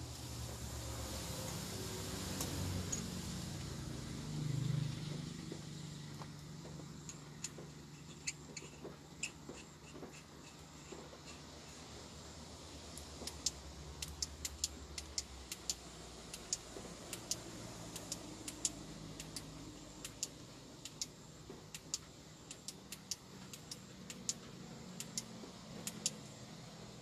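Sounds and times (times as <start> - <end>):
irregular sharp clicks: 12.9 - 26.3.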